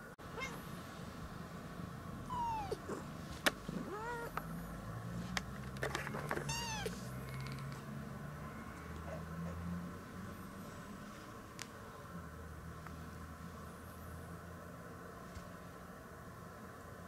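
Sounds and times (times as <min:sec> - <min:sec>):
kittens mewing: 0:00.3 - 0:00.7, 0:02.3 - 0:03.1, 0:03.7 - 0:04.4, 0:06.1 - 0:07.5.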